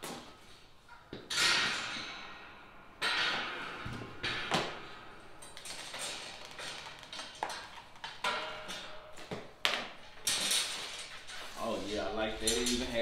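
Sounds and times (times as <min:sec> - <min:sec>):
metal parts knocking and clinking: 0:10.2 - 0:11.4.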